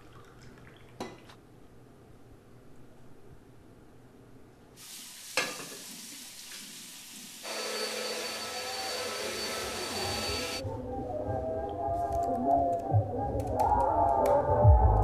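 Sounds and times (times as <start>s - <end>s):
vacuum cleaner motor whining: 7.4s - 10.6s.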